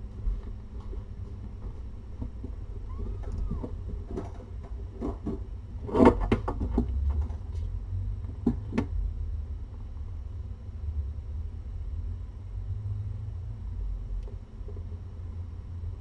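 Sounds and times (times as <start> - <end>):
steady low hum: 0.0 - 16.0
kittens rustling and knocking: 0.3 - 7.6.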